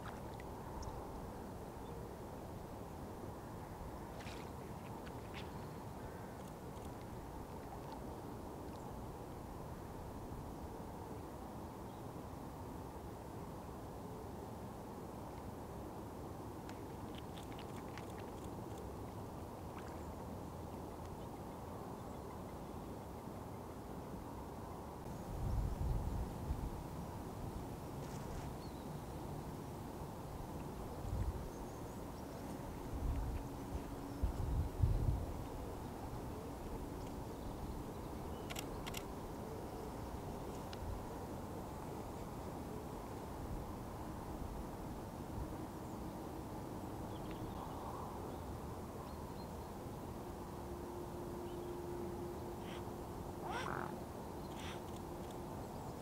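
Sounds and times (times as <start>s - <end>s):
faint bird chirps: 52.6s - 55.0s.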